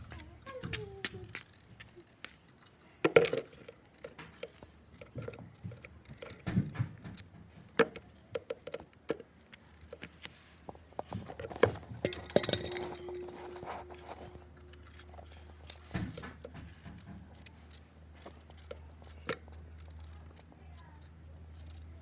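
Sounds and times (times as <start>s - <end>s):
metal bowl ringing: 12.0s - 14.6s
knife scraping turnip: 13.1s - 22.0s.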